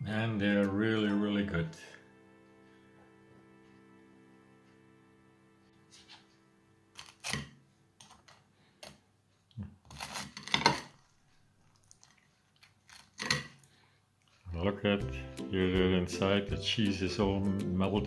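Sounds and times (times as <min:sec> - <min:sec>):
soft background music: 0:00.0 - 0:08.0, 0:14.5 - 0:18.0.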